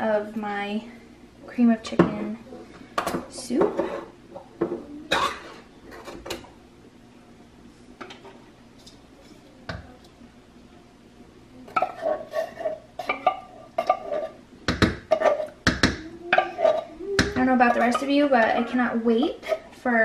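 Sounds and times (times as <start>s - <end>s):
wooden spoon scraping tin can: 11.8s - 14.4s, 17.7s - 19.7s.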